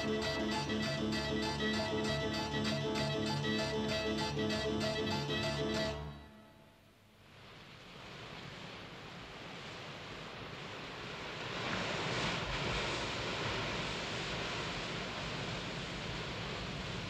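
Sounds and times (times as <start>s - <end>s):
sea surf and wind rushing: 0.0s - 6.1s, 7.3s - 17.0s.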